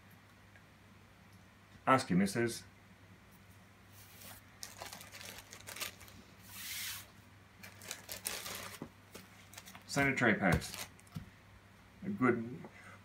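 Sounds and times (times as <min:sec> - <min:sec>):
plastic packaging crinkling: 0:04.1 - 0:07.0, 0:07.6 - 0:11.2.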